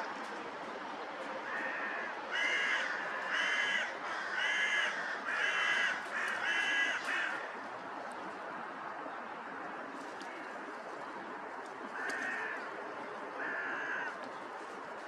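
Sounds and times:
crow cawing: 1.4s - 7.5s, 11.9s - 12.6s, 13.4s - 14.2s.

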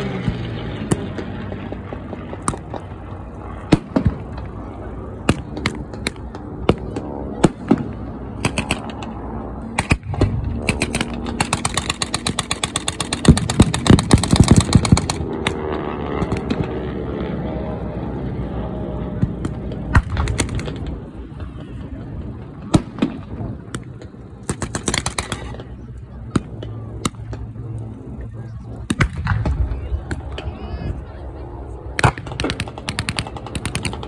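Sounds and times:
propeller aircraft droning overhead: 0.0s - 34.0s
machine-gun burst: 10.7s - 15.2s.

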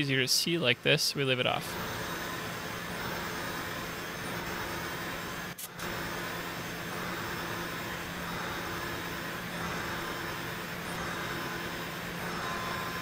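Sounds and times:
router spindle and machine hum: 0.0s - 13.0s.

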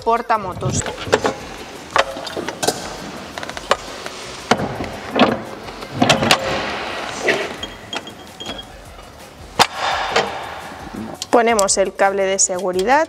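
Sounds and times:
metal knocks and clicks: 4.5s - 8.7s.

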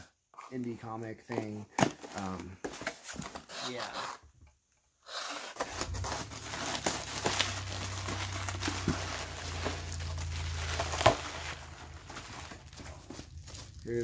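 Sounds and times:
plastic packaging crinkling: 5.6s - 14.0s.

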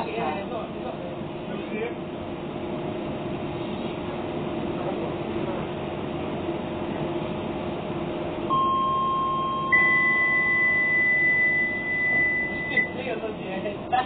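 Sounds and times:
train hum: 0.0s - 14.0s
electronic chime tones: 8.5s - 13.0s.

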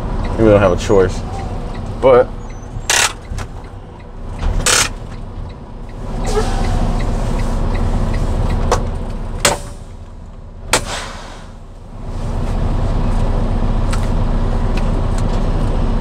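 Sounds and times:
truck engine rumble: 0.0s - 16.0s
sharp clicks and knocks: 2.8s - 3.7s, 4.3s - 5.6s, 8.4s - 9.8s.

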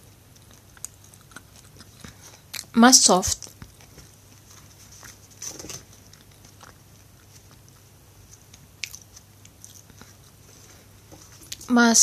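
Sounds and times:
chewing bread: 0.0s - 11.7s.

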